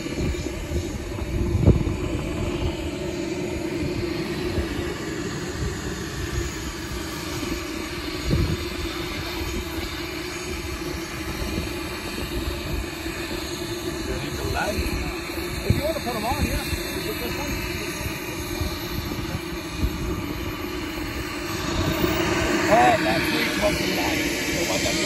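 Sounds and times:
model jet turbine rush: 0.0s - 25.0s
wind buffeting microphone: 0.0s - 25.0s.

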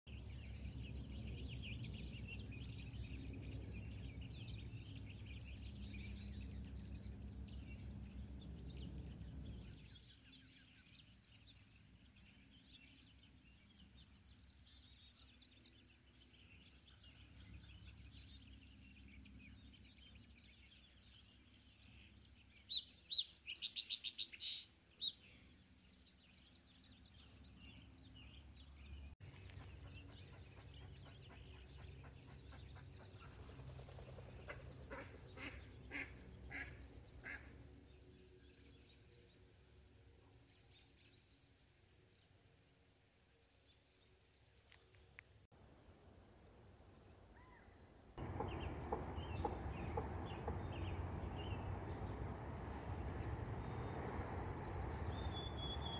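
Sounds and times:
songbirds chirping: 0.1s - 55.9s
loud rapid bird trill: 48.2s - 55.9s
low rumble: 48.2s - 55.9s.

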